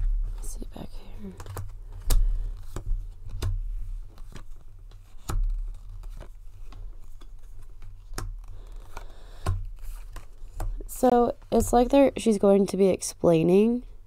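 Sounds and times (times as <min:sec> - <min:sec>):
cards clicking and snapping: 0:01.3 - 0:10.8.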